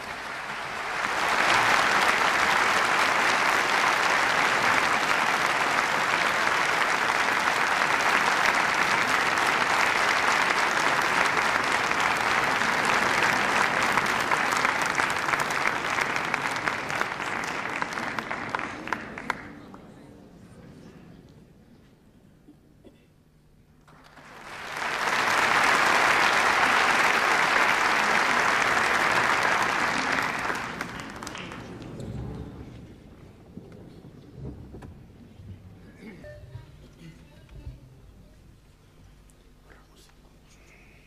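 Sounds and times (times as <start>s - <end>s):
audience applauding: 0.0s - 19.8s, 23.9s - 32.8s.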